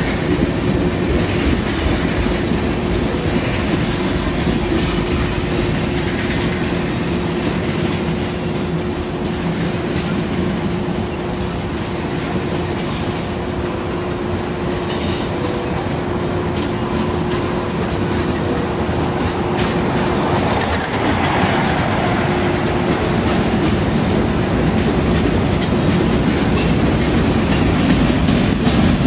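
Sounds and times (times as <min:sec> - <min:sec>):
train wheels rumbling on rails: 0:00.0 - 0:29.0
clicking over rail joints: 0:14.4 - 0:29.0.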